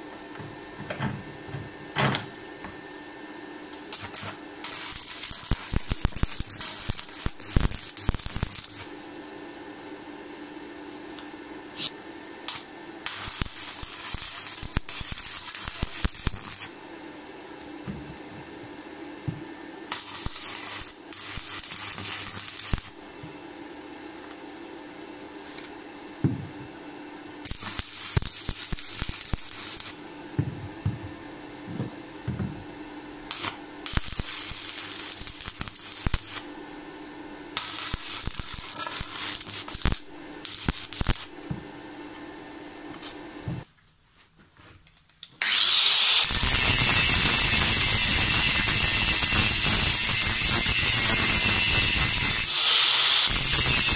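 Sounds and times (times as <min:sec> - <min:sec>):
arc welding crackling: 0:03.8 - 0:09.0, 0:11.8 - 0:16.8, 0:19.9 - 0:23.2, 0:27.4 - 0:30.2, 0:33.2 - 0:41.4, 0:45.4 - 0:53.9
angle grinder cutting metal: 0:37.6 - 0:41.3, 0:45.4 - 0:53.9.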